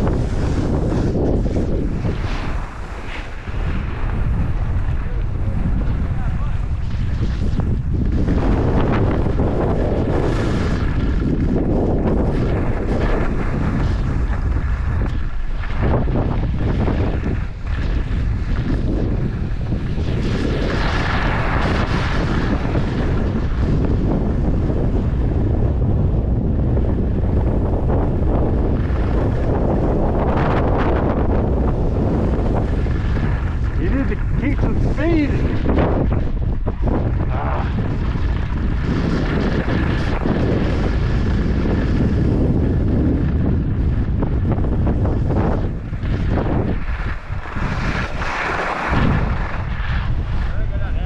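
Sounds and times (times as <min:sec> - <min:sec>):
skis hissing on snow: 0:00.0 - 0:05.6, 0:17.6 - 0:23.0, 0:31.8 - 0:35.7, 0:46.1 - 0:49.7
skis hissing over snow: 0:00.0 - 0:24.5, 0:28.8 - 0:43.3, 0:44.8 - 0:50.8
low rumble: 0:00.0 - 0:51.0
wind buffeting microphone: 0:00.0 - 0:51.0.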